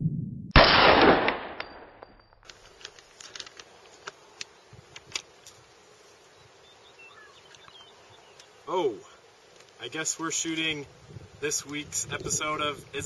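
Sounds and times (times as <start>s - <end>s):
insect buzz: 3.0s - 11.5s.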